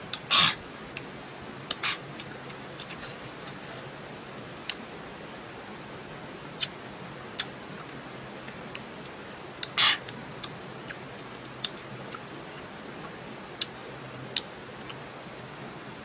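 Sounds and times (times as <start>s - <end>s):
steady hiss: 0.0s - 16.0s
chewing fruit wet clicks: 1.7s - 3.7s, 4.6s - 4.8s, 7.4s - 12.3s, 13.0s - 15.0s.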